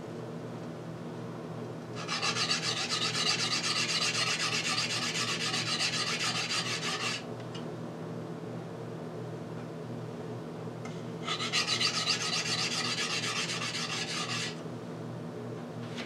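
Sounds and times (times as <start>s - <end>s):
knife scraping on whetstone: 2.0s - 7.2s, 11.2s - 14.6s.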